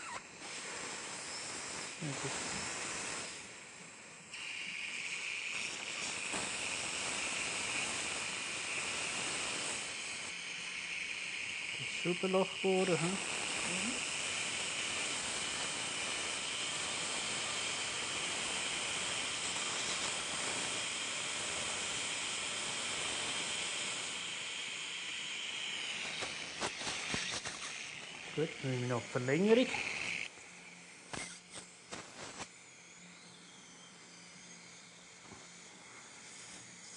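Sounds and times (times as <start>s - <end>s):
dental drill and suction hiss: 0.0s - 36.9s.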